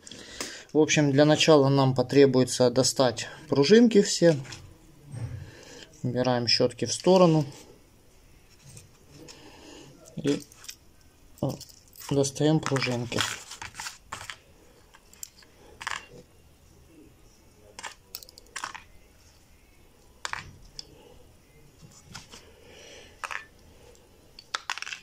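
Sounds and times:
faint handling noise: 6.8s - 17.0s, 17.6s - 25.0s.

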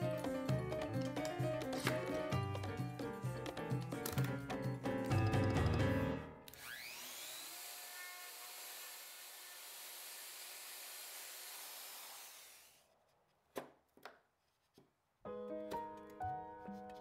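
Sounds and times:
router whining: 6.5s - 12.8s.

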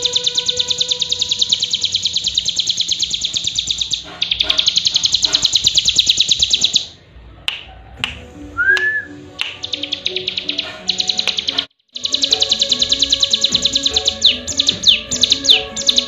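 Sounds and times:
bird singing fast ticking trill: 0.0s - 6.9s, 9.4s - 16.0s
sharp clicks: 8.8s - 16.0s.

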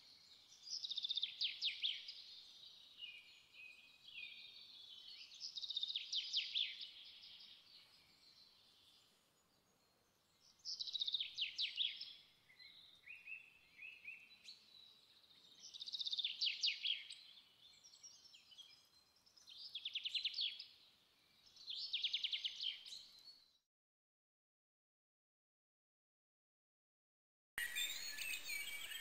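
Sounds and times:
soft bird chirps: 0.0s - 23.6s, 27.6s - 29.0s
bird trilling song: 10.4s - 23.5s, 27.6s - 29.0s.

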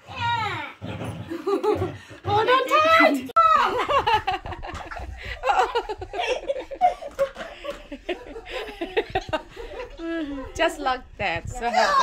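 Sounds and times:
people laughing: 1.3s - 2.2s, 3.4s - 10.6s
people talking: 2.2s - 4.2s, 8.6s - 12.0s.

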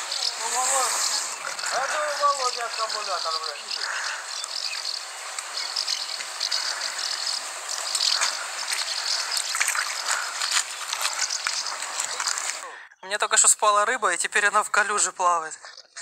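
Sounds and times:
steady hiss: 0.0s - 12.7s
fish splashing in water: 3.8s - 12.6s.

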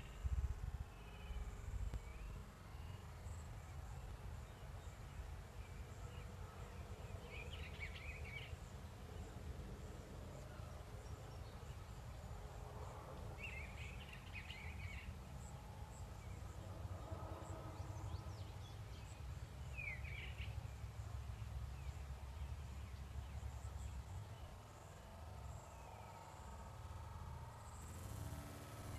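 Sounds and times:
faint bird chirps: 0.0s - 9.3s.

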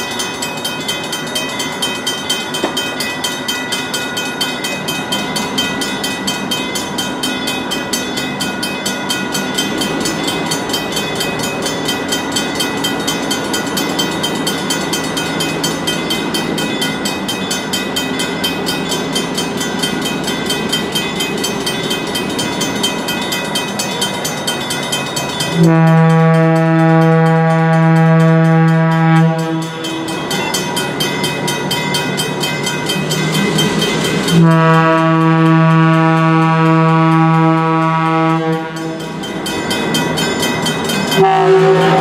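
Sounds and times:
railroad crossing bells ringing: 0.0s - 42.0s
train horn: 25.5s - 30.1s, 34.3s - 39.0s, 41.2s - 42.0s.

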